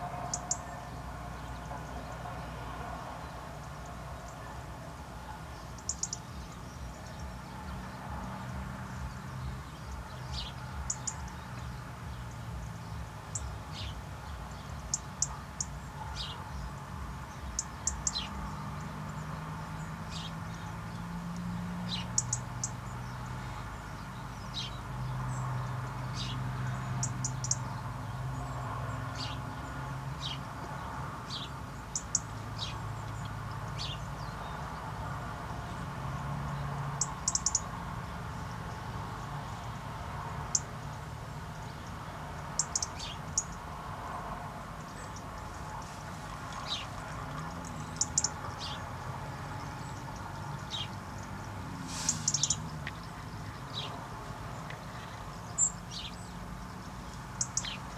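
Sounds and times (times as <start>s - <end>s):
birds calling: 0.0s - 57.9s.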